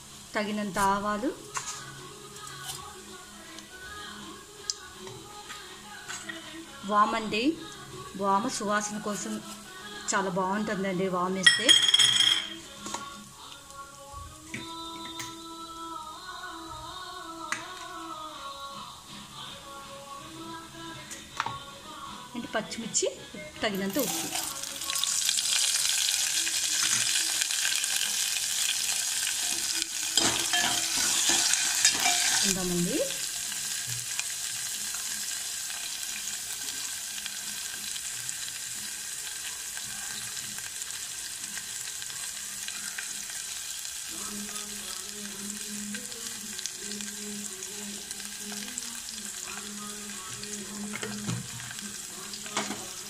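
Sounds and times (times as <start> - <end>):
chillies sizzling in hot oil: 0.0 - 16.6, 23.6 - 53.0.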